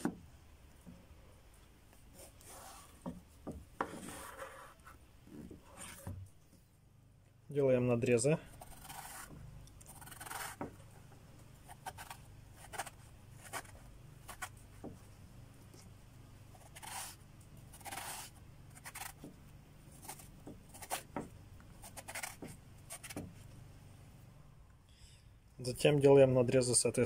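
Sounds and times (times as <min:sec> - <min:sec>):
knife cutting on wooden board: 0:08.6 - 0:10.8, 0:16.6 - 0:17.2, 0:17.8 - 0:19.3, 0:20.0 - 0:21.3, 0:21.9 - 0:23.3.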